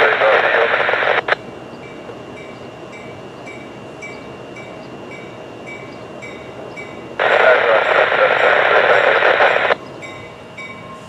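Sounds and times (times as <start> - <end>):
crossing warning bell ringing: 1.4 - 7.2, 9.5 - 11.0.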